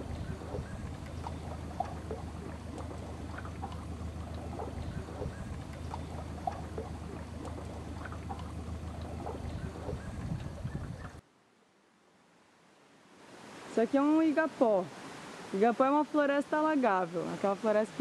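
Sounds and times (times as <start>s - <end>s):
stream trickling over rocks: 0.0s - 11.2s
low steady hum: 0.0s - 13.1s.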